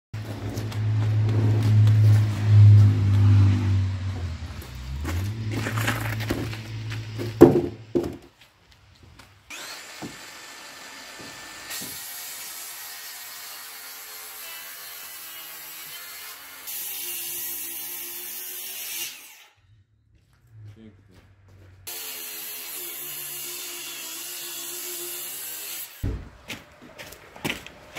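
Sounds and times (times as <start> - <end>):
low engine rumble: 0.2 - 8.2
wooden boards knocking: 5.6 - 8.3
electric hand planer shaving wood: 9.5 - 19.2.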